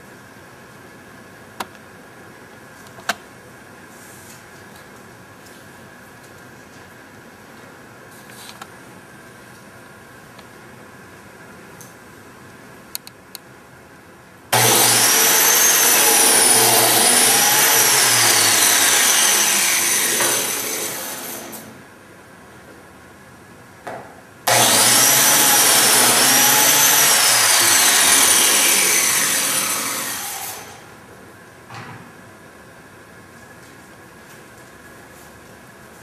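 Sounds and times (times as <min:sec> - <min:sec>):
biscuit joiner motor whine: 0:14.5 - 0:21.7, 0:24.5 - 0:31.0.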